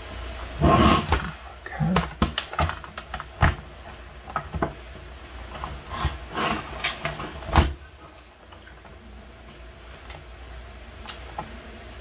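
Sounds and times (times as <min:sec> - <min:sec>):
laptop scraping across wooden desk: 0:00.6 - 0:01.2, 0:05.7 - 0:07.4.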